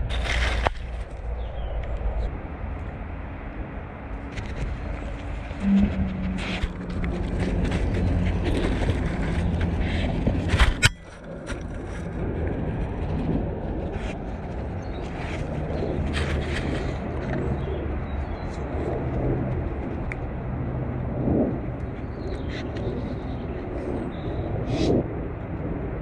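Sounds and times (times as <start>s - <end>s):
steady low rumble: 0.0s - 26.0s
dog crunching and gnawing: 6.1s - 17.6s.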